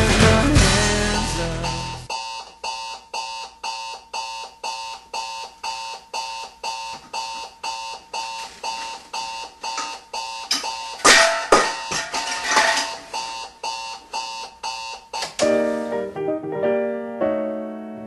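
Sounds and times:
alarm clock beeping: 1.6 - 12.1, 12.7 - 15.3.

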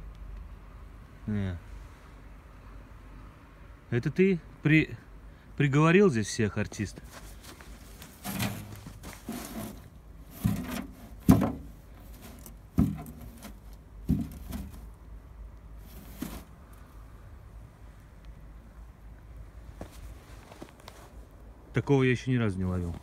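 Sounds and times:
box trap knocking and scraping: 8.0 - 15.0, 15.8 - 16.6.

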